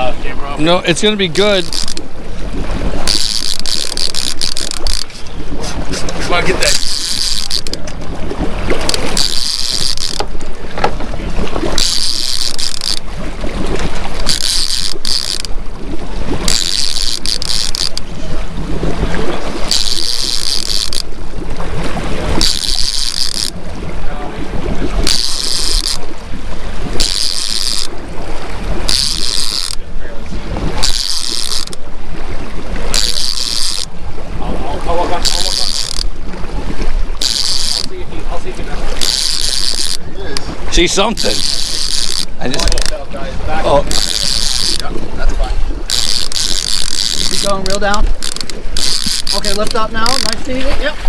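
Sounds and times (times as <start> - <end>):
boat engine humming: 0.0 - 51.0
fishing reel ratcheting whir: 1.0 - 2.2, 2.9 - 5.3, 6.0 - 8.0, 8.7 - 11.0, 11.6 - 15.6, 16.4 - 18.1, 19.6 - 21.2, 22.3 - 23.6, 25.0 - 26.1, 27.0 - 27.9, 28.8 - 29.9, 30.7 - 31.9, 32.9 - 33.9, 35.2 - 36.1, 37.1 - 38.0, 39.0 - 40.1, 40.7 - 43.1, 43.8 - 44.9, 45.8 - 50.6.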